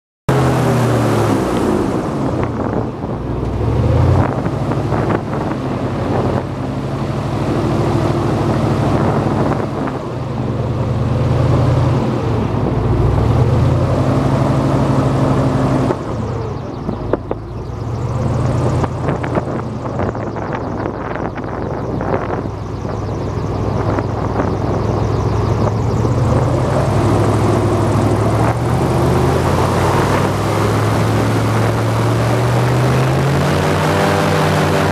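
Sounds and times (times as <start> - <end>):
airboat engine and propeller: 0.3 - 34.9.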